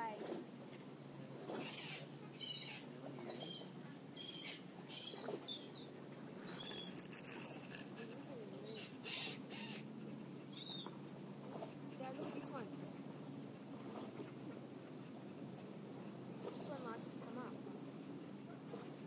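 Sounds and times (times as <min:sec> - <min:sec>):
birds chirping: 0:01.6 - 0:07.1, 0:08.2 - 0:11.2.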